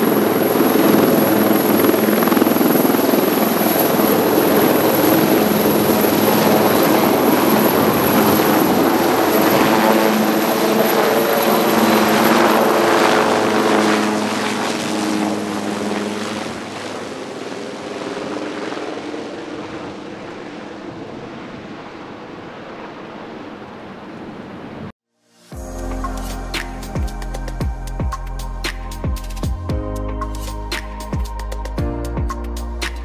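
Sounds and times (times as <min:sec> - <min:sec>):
helicopter turbine whine and rotor: 0:00.0 - 0:24.7.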